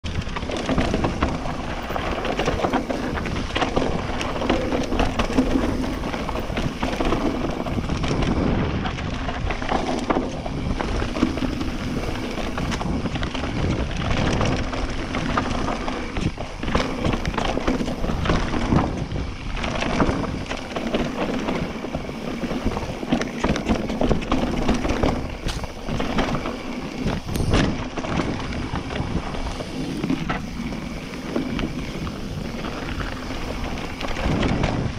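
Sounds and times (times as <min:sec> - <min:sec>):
bike knocking and rattling: 0:00.0 - 0:34.9
bike tyres rumbling on dirt: 0:00.0 - 0:34.9.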